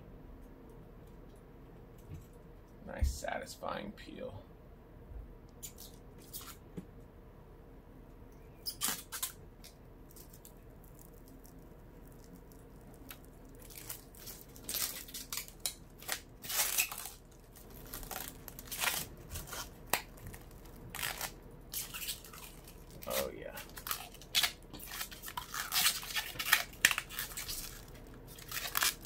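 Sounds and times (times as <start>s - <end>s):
plastic film crackling: 8.7s - 29.0s.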